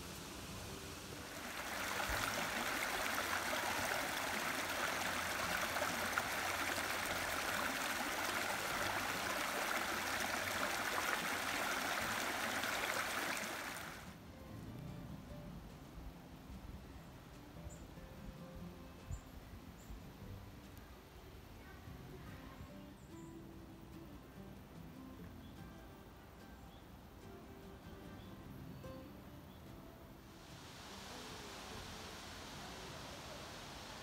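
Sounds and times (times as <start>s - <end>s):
stream rushing over rocks: 0.0s - 14.2s, 30.3s - 34.0s.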